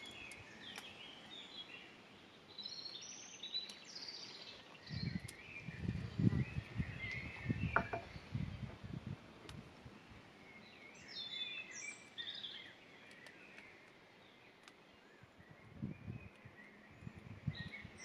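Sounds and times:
faint outdoor hiss: 0.0s - 18.0s
songbirds chirping and singing: 0.0s - 18.0s
soft low bumps: 7.6s - 8.8s.

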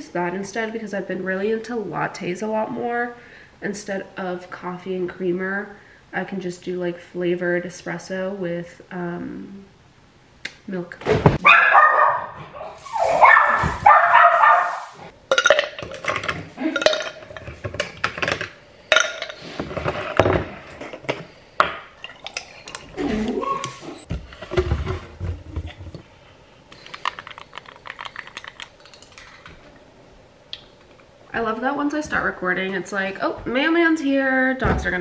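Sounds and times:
dog barking: 11.4s - 14.9s
ice cubes clinking in a glass: 15.3s - 19.4s.

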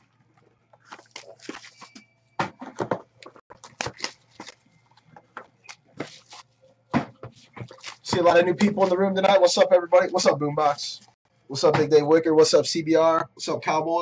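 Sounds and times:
handling card box and cards: 0.8s - 9.0s.

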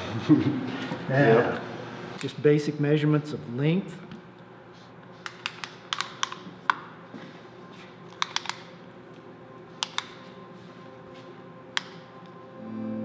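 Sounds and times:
tape measure clicks and taps: 8.1s - 8.7s, 9.8s - 10.2s.

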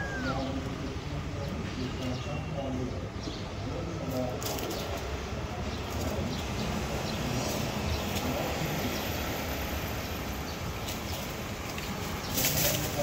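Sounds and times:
rustle of dry leaves: 0.0s - 0.9s, 4.0s - 13.0s.

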